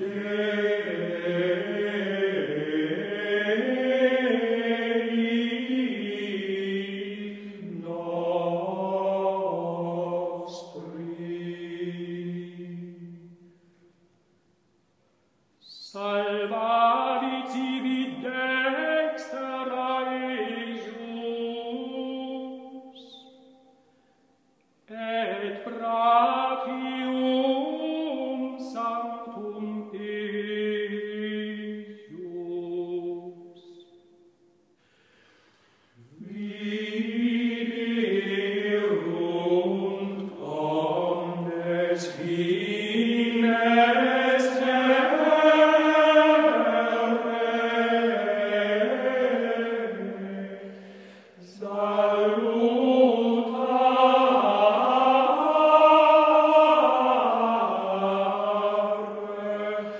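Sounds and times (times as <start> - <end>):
slow vocal chant: 0.0 - 14.2, 15.6 - 59.9.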